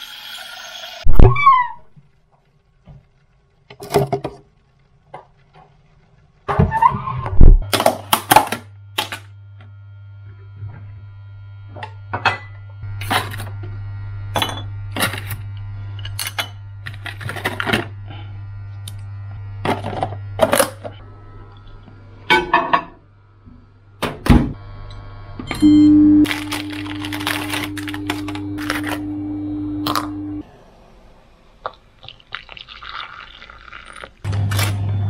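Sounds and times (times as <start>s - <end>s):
steady low hum: 7.4s - 32.1s.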